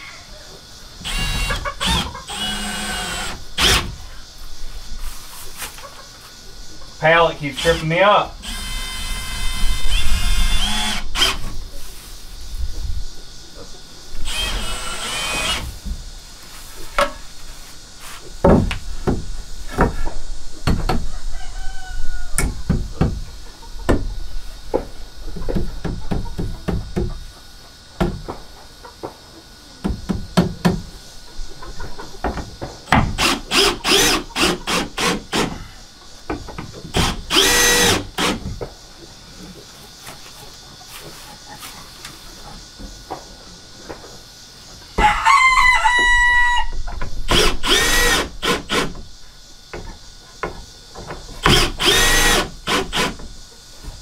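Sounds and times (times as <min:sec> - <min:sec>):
cordless drill whirring: 0:01.0 - 0:03.8, 0:08.4 - 0:11.4, 0:14.3 - 0:15.7, 0:33.2 - 0:35.5, 0:37.0 - 0:38.4, 0:47.3 - 0:48.9, 0:51.4 - 0:53.1
wood knocking and clattering: 0:18.4 - 0:21.0.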